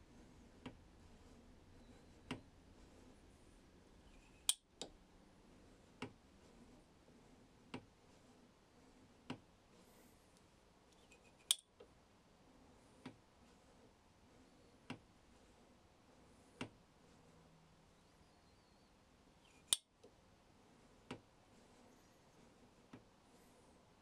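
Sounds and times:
small metal clicks: 10.9s - 11.8s.

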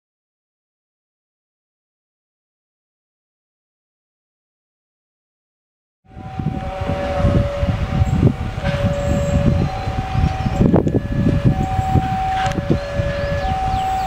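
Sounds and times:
low rumble: 6.1s - 14.0s
two-tone crossing alarm: 6.1s - 14.0s.

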